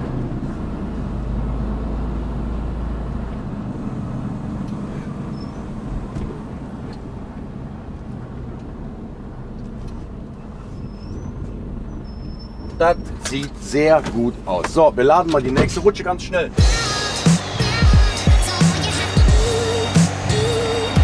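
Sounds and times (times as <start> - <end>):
truck engine drone: 0.0 - 13.3, 16.1 - 21.0.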